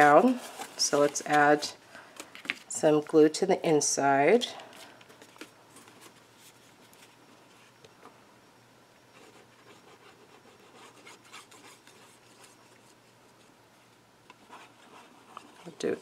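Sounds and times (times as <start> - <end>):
cardstock rubbing and rustling: 0.0 - 2.7.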